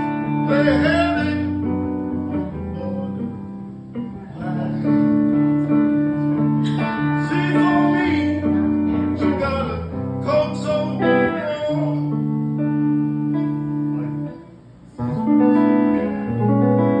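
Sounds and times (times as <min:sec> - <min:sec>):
man singing: 0:00.0 - 0:03.5, 0:04.2 - 0:05.4, 0:06.6 - 0:12.3
guitar ringing chords: 0:00.0 - 0:17.0.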